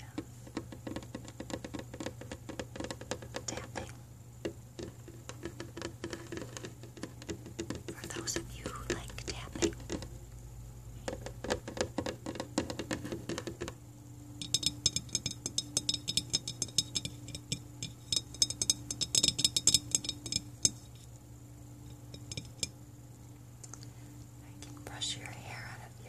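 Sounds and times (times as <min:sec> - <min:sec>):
fingertips tapping on camera: 0:00.0 - 0:10.1, 0:11.0 - 0:13.8.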